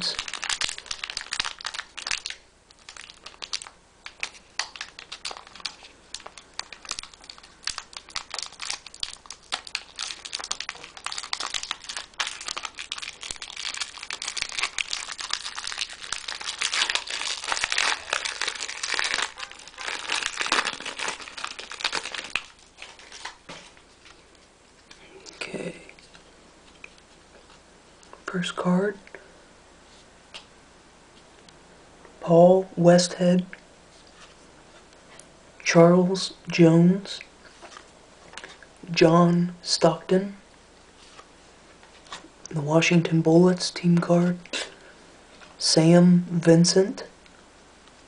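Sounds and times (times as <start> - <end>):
wrapper crackling and tearing: 0.0 - 23.4.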